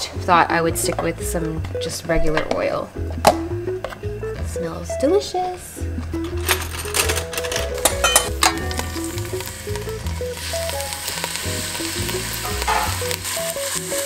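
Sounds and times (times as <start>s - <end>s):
beef sizzling in hot oil: 7.8s - 14.0s.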